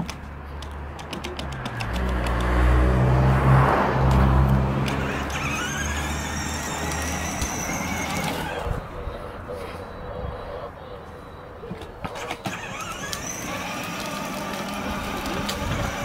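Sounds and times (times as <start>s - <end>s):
motorbike engine revving: 1.4s - 8.8s, 12.2s - 16.0s.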